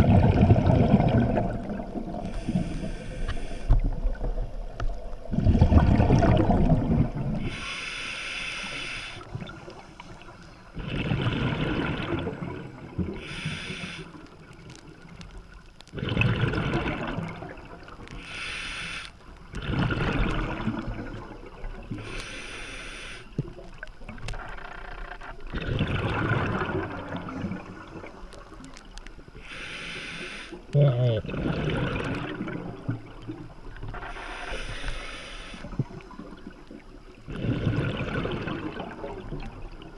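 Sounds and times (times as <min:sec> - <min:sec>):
exhaled bubbles rumbling: 0:00.0 - 0:02.9, 0:03.6 - 0:07.6, 0:09.2 - 0:13.3, 0:14.5 - 0:18.2, 0:19.5 - 0:22.1, 0:23.4 - 0:29.0, 0:30.8 - 0:34.4, 0:35.6 - 0:39.9
regulator inhalation hiss: 0:02.2 - 0:03.9, 0:07.4 - 0:09.3, 0:13.2 - 0:14.2, 0:18.2 - 0:19.2, 0:22.0 - 0:23.4, 0:29.4 - 0:30.7, 0:34.0 - 0:36.0.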